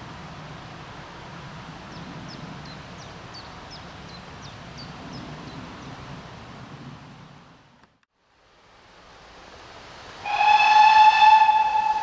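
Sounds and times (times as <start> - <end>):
small bird singing: 1.9 - 5.9.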